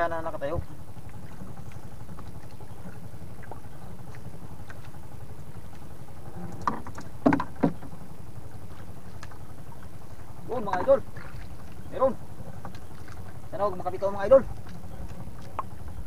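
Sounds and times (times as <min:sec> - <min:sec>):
boat engine rumble: 0:00.0 - 0:16.0
sharp knocks: 0:06.6 - 0:07.9.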